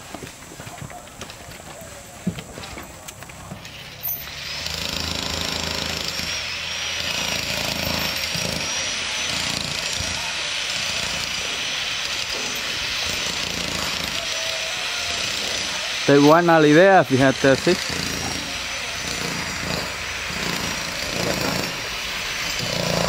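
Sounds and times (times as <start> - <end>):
power tool whining: 3.1 - 23.0
hissing noise: 6.4 - 23.0.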